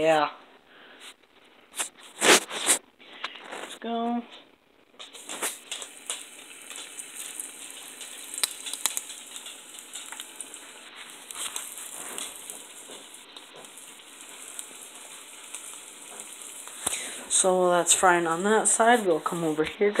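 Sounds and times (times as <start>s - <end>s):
oil crackling and popping: 4.8s - 20.0s
fish sizzling in hot oil: 5.0s - 20.0s.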